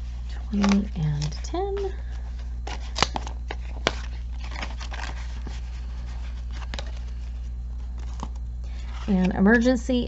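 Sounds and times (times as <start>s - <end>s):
paper rustling: 0.0s - 9.8s
steady low hum: 0.0s - 10.0s.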